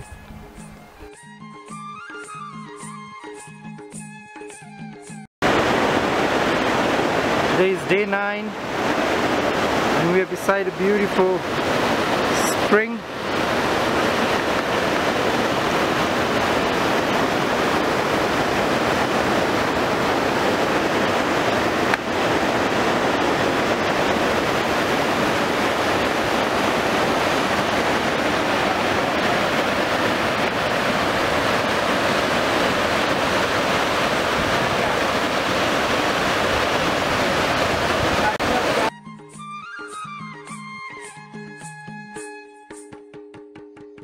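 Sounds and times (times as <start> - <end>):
river rushing over boulders: 5.4 - 38.9.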